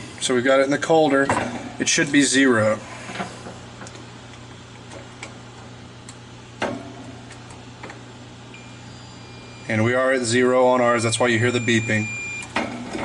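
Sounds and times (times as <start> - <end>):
low steady hum: 0.0 - 13.0
continuity beeper high tone: 8.6 - 12.5.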